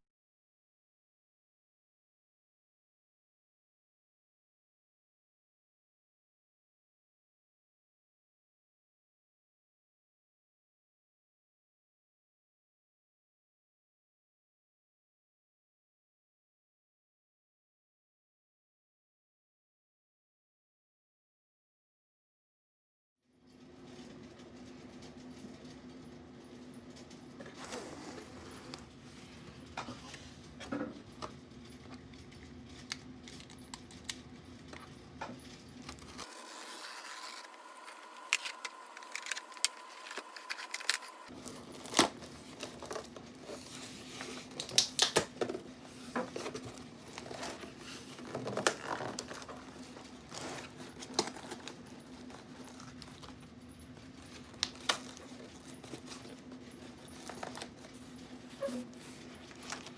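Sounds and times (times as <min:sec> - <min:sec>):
tape and cardboard tearing: 0:36.1 - 0:42.3.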